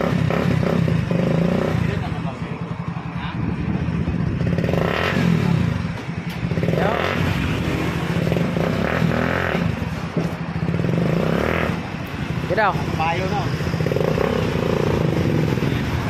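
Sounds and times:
motorcycle engine idling and revving: 0.0s - 16.0s.

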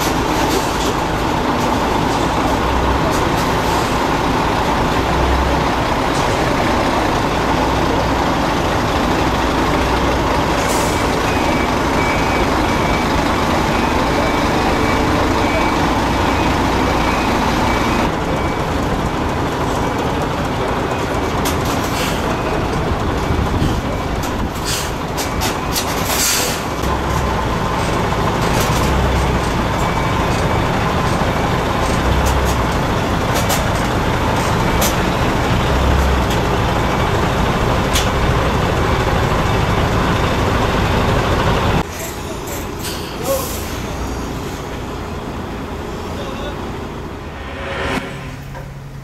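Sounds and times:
truck diesel engine running: 0.0s - 47.4s
air-brake hisses: 24.6s - 25.0s, 26.1s - 26.7s, 41.9s - 44.1s.

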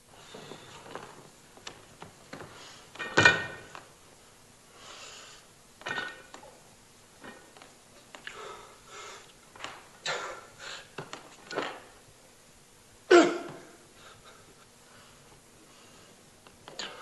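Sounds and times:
barbell clanking: 3.0s - 3.8s.

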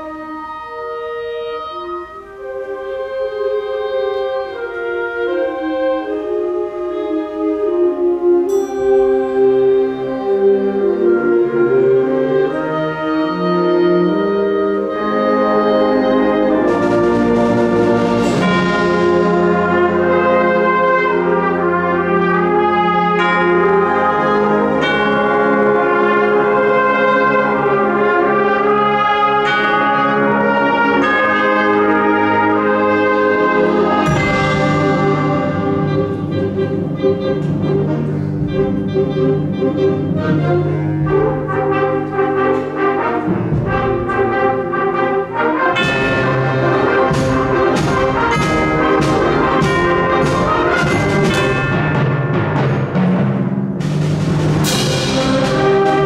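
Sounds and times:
concert band playing: 0.0s - 56.0s
percussion strokes: 8.5s - 10.8s, 15.2s - 56.0s.

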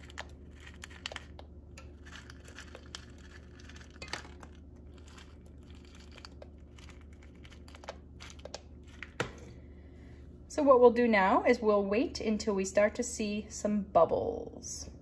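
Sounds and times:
crackles and pops: 0.0s - 9.2s
steady low hum: 0.0s - 15.0s.

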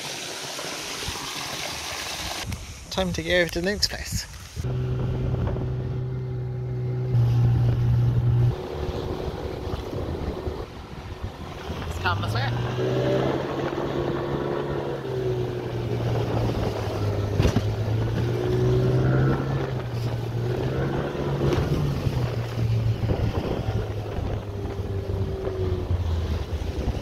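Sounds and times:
water noise: 0.0s - 27.0s
wind: 0.0s - 27.0s
outboard motor running: 4.6s - 12.6s, 13.4s - 27.0s.

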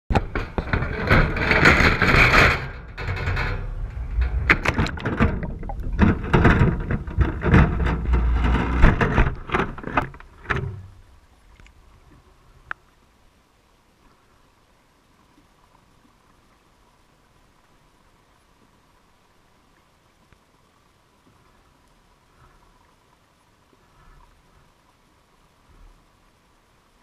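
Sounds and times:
wire trap knocking and rattling: 0.1s - 10.9s
rushing water: 0.1s - 27.0s.

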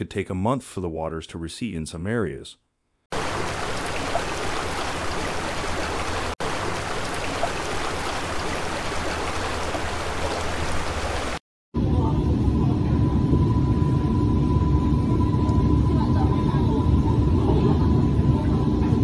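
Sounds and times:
heavy rain pouring: 3.1s - 11.4s.

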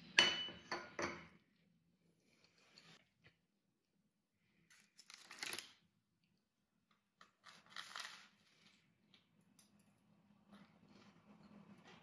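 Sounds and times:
baking parchment crinkling: 4.6s - 5.9s, 6.9s - 9.4s.

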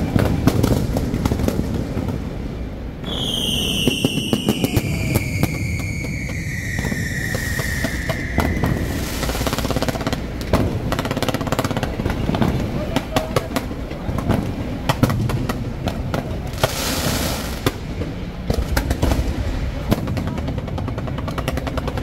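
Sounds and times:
fireworks crackles and bangs: 0.0s - 22.0s
descending firework whistle: 3.0s - 10.6s
low rumble: 4.8s - 11.0s.

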